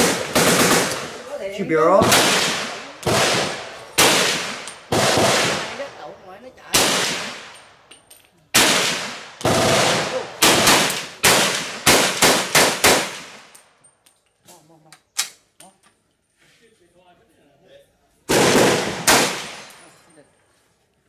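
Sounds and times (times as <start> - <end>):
rifle shots with echo: 0.0 - 6.0, 6.7 - 7.6, 8.5 - 13.5, 18.3 - 19.8.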